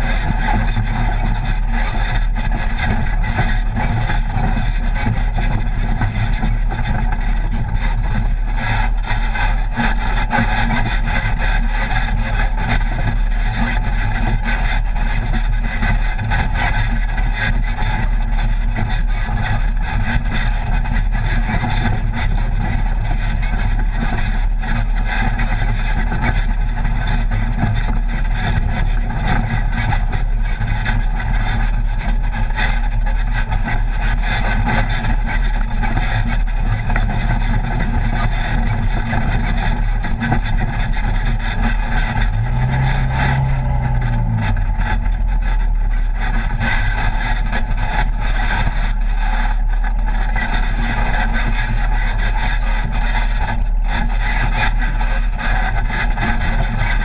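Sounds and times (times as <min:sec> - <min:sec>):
vehicle engine running: 0:37.0 - 0:54.1.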